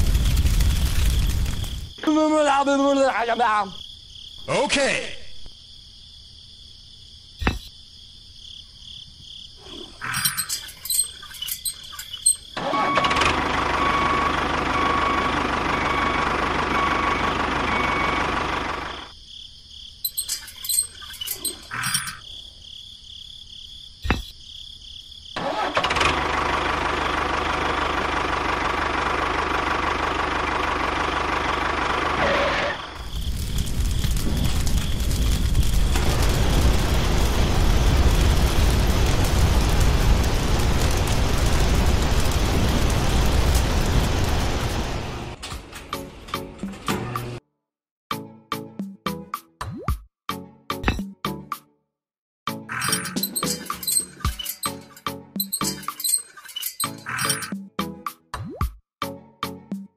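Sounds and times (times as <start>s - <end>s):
toy tractor engine running: 10.3s - 19.1s.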